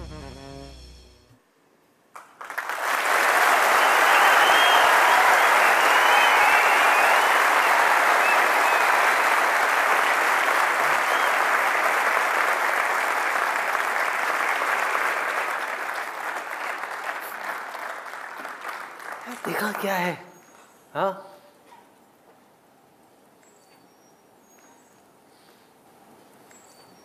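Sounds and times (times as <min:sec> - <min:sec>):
large audience applauding: 0:02.1 - 0:20.2.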